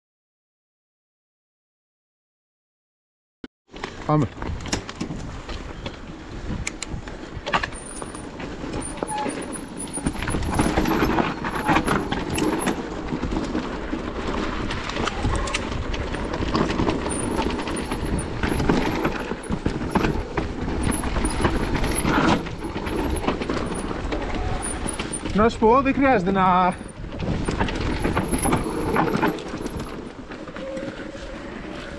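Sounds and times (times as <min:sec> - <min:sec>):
tyre and wind rush: 0:03.7 - 0:31.9
bike rattling and knocking: 0:03.8 - 0:30.6.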